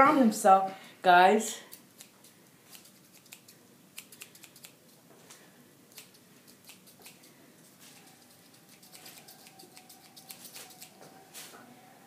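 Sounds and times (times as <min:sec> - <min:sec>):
scissors snipping hair: 0:01.6 - 0:05.0, 0:05.9 - 0:11.0.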